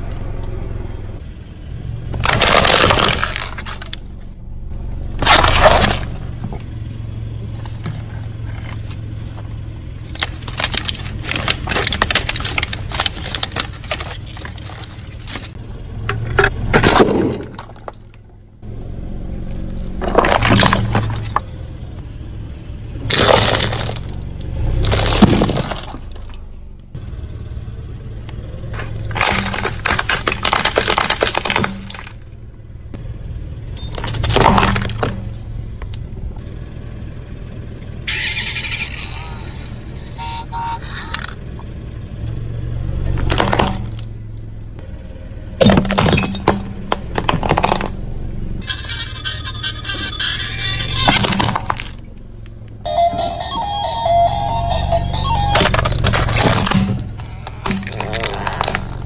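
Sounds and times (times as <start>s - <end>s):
car engine running: 0.0s - 59.0s
tyre crushing brittle objects: 2.1s - 4.0s, 5.2s - 6.2s, 7.6s - 15.6s, 20.0s - 21.5s, 23.1s - 26.2s, 28.7s - 32.3s, 33.8s - 35.3s, 43.1s - 44.1s, 45.6s - 48.0s, 51.1s - 52.2s, 55.5s - 59.0s.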